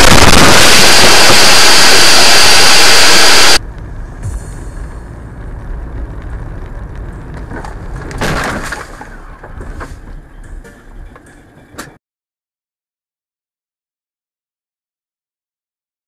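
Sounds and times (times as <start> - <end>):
car crash crunch: 0.0 - 10.1
car driving rumble from inside: 3.6 - 11.6.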